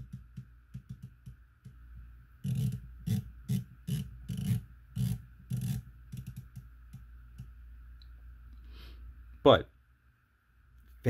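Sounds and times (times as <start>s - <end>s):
fingers rubbing knurled cap: 2.4s - 7.5s.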